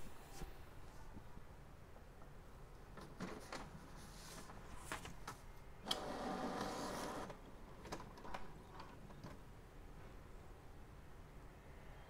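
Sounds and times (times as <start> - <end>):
printer mechanism running: 5.8 - 7.4.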